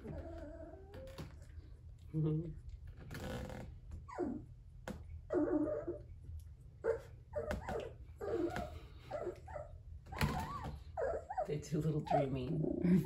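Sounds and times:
puppies crying: 0.0s - 1.6s, 4.0s - 4.6s, 5.2s - 6.2s, 6.8s - 12.8s.

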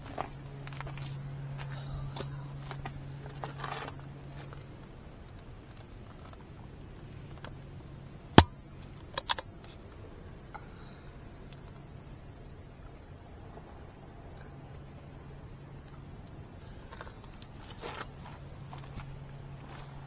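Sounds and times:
faint high buzz: 7.2s - 20.0s.

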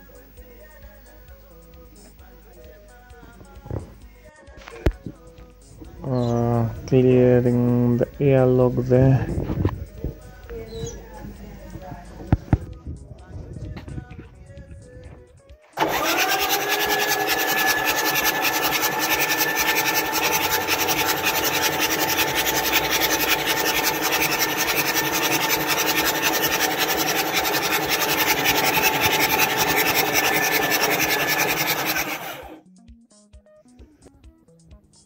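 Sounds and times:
starter motor cranking: 15.8s - 32.6s.

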